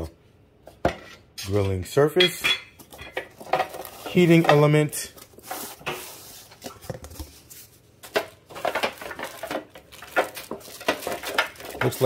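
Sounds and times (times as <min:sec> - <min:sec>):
plastic wrap rustling: 0:02.9 - 0:12.0.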